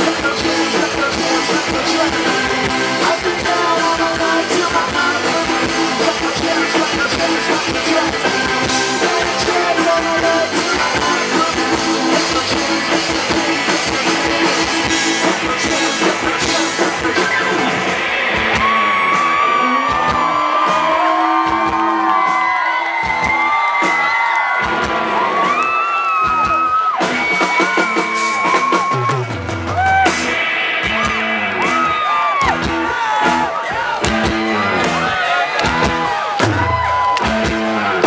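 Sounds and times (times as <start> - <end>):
person singing: 0.0 - 22.9
live rock band playing: 0.0 - 38.0.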